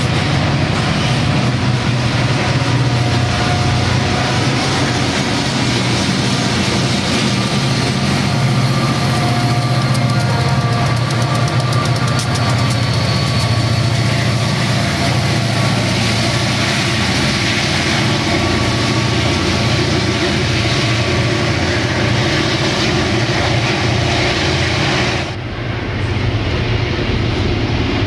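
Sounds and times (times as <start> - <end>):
diesel locomotives running: 0.0 - 28.0
wheel and rail noise: 0.0 - 28.0
wheel clicks over rails: 9.7 - 13.8.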